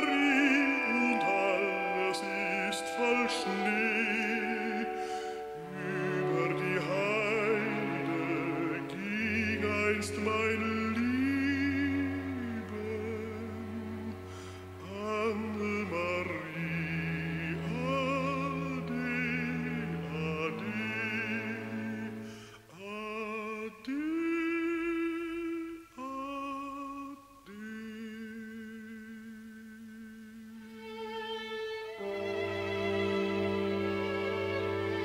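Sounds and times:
sustained accompaniment: 0.0s - 22.6s, 30.6s - 35.0s
man singing with vibrato: 0.0s - 30.8s.

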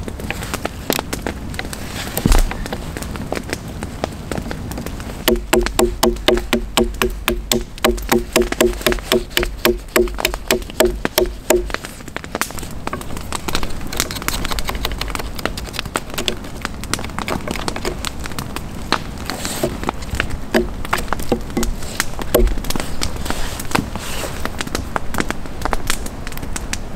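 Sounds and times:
knife chopping wooden stake: 2.2s - 2.6s, 5.2s - 16.3s, 20.6s - 24.2s
knife scraping wood: 5.3s - 11.9s, 19.2s - 19.9s, 20.6s - 24.5s.

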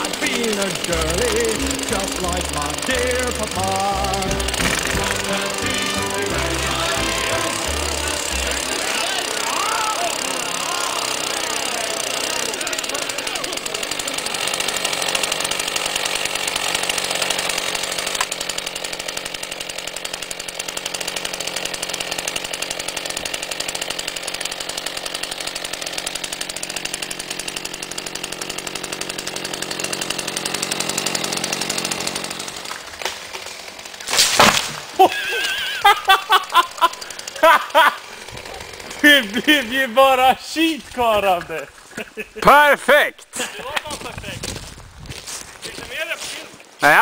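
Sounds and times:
tree crashing down: 0.0s - 18.4s, 24.7s - 35.8s
chainsaw cutting tree trunk: 0.0s - 42.0s.

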